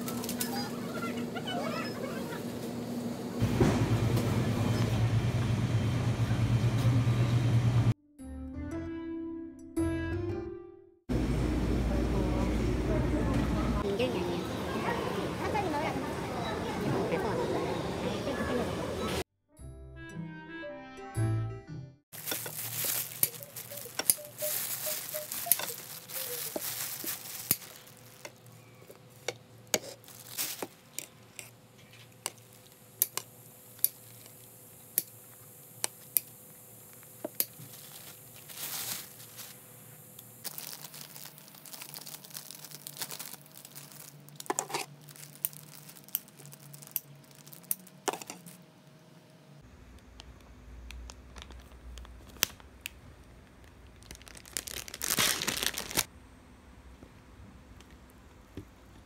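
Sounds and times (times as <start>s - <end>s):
plastic bag crinkling: 22.1s - 31.4s, 32.1s - 32.9s, 37.5s - 39.6s, 40.4s - 48.6s, 51.0s - 56.1s.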